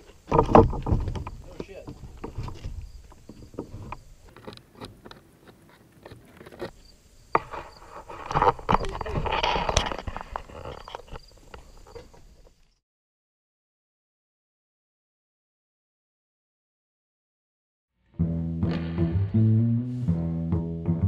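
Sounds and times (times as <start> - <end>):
sharp crack: 18.6 - 19.8.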